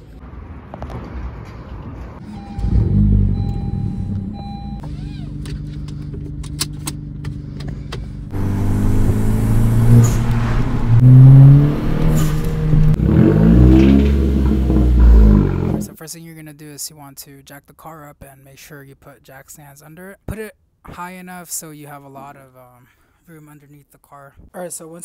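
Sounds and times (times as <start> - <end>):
car engine: 0.0 - 16.0.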